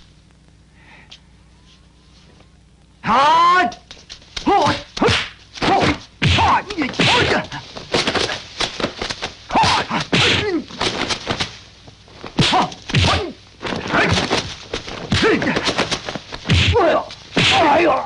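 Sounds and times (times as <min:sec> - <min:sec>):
fighters shouting and grunting: 0:04.4 - 0:08.4, 0:09.5 - 0:10.8, 0:12.4 - 0:14.4, 0:15.1 - 0:15.9, 0:16.5 - 0:18.0
punch and kick whacks: 0:04.4 - 0:11.6, 0:12.3 - 0:18.0.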